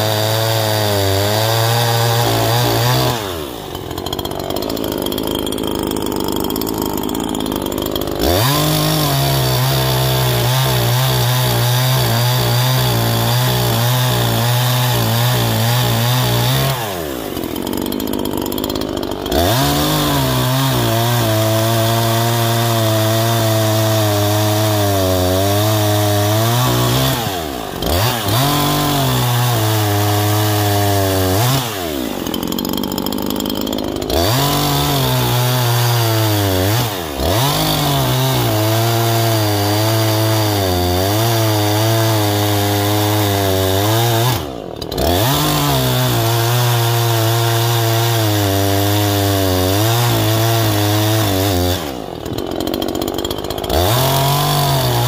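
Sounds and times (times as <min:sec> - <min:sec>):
chainsaw cutting logs: 0:00.0 - 0:55.0.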